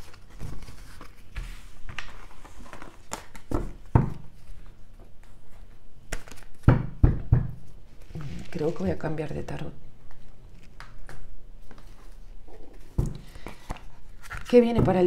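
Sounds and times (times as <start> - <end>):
cards being handled: 0.0 - 6.7, 10.1 - 14.7.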